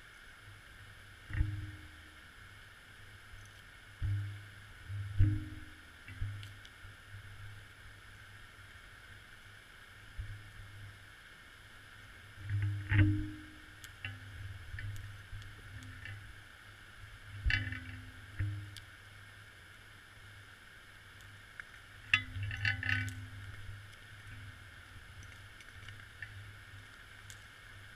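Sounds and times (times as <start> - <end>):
underwater hum and hiss: 0.0 - 27.9.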